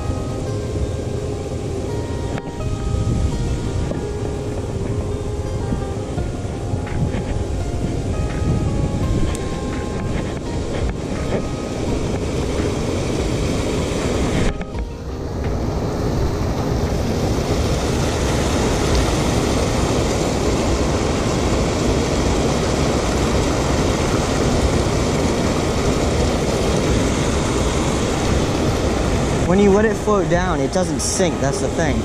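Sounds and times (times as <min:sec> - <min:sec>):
water rushing over spillway: 0:06.9 - 0:32.0.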